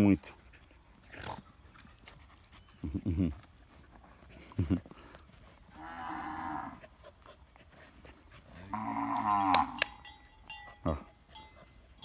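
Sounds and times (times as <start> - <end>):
cattle mooing: 5.8 - 6.8, 8.7 - 9.9.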